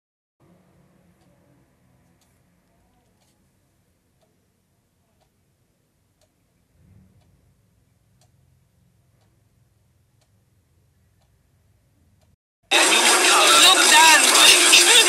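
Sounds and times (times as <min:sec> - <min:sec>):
faint clicks: 0:02.0 - 0:03.5, 0:06.2 - 0:06.4
faint low rumble: 0:06.6 - 0:09.9.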